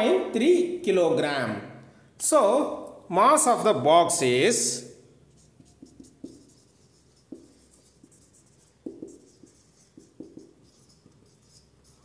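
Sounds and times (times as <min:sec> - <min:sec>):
marker pen writing on whiteboard: 0:05.1 - 0:12.0
marker taps on whiteboard: 0:05.6 - 0:06.6, 0:07.2 - 0:11.2.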